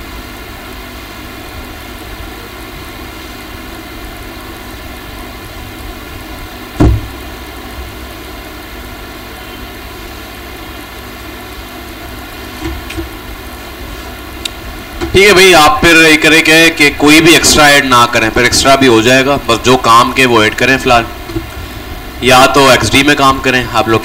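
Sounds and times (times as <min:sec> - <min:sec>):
faint electrical hum: 0:00.0 - 0:24.0
steady background hiss: 0:00.0 - 0:24.0
loud short thump: 0:06.8 - 0:07.2.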